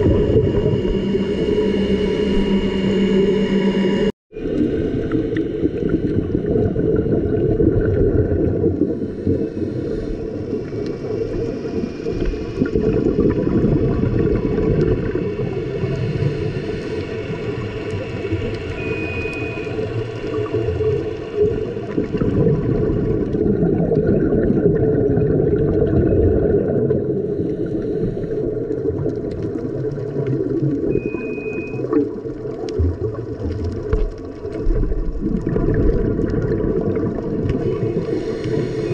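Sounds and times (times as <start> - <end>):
underwater rumble and bubbling: 0.0 - 38.9
short high beeps: 18.7 - 19.9, 30.9 - 31.8.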